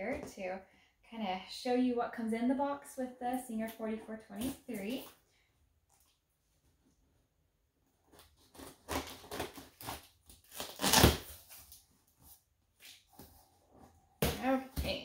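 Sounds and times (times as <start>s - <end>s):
scissors cutting tape and cardboard: 8.1s - 11.4s.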